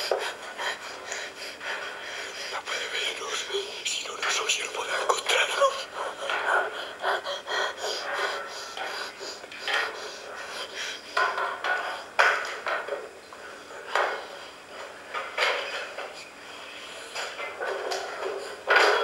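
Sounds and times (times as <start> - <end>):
hard objects knocking and clattering: 7.7 - 16.3, 17.1 - 19.0.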